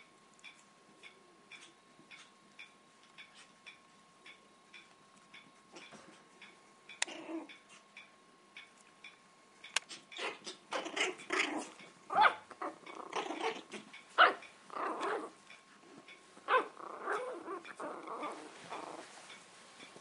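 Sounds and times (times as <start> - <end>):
puppies growling: 7.0 - 7.9, 9.9 - 19.4.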